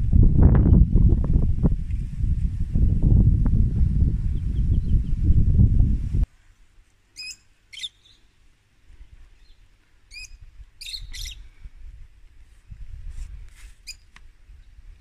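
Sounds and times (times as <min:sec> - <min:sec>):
birds chirping: 0:07.2 - 0:08.3, 0:09.3 - 0:11.5.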